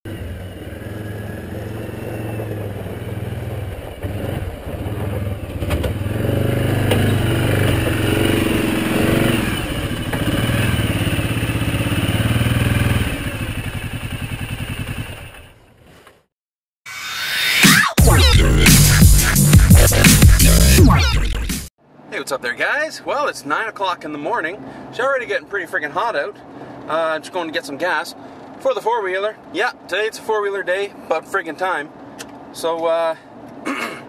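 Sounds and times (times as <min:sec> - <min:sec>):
atv engine running: 0:00.1 - 0:15.8.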